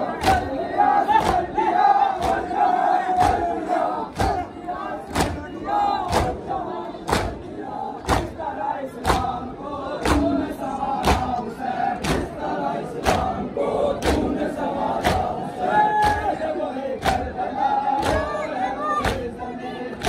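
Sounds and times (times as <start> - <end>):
men chanting and shouting: 0.0 - 20.0
hands slapping chests: 1.2 - 1.6, 5.1 - 5.4, 7.1 - 7.4, 8.1 - 8.4, 9.0 - 9.4, 10.0 - 10.3, 11.0 - 11.4, 12.0 - 12.3, 13.0 - 13.4, 15.0 - 15.4, 16.0 - 16.3, 17.0 - 17.3.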